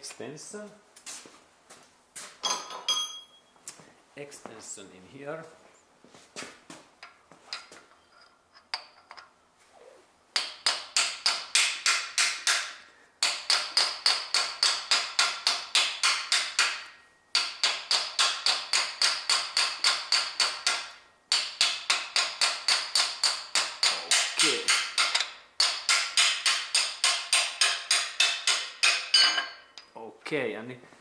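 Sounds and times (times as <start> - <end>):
hammer tapping on metal: 10.4 - 29.8.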